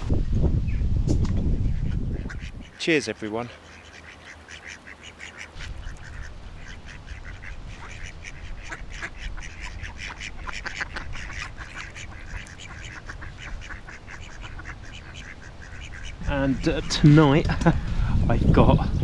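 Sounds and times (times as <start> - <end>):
birds calling: 1.5 - 19.0.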